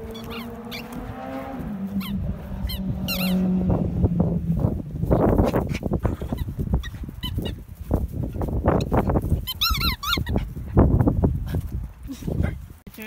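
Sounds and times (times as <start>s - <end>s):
squeaky ball squeaks: 0.0s - 1.0s, 2.0s - 3.4s, 9.4s - 10.4s.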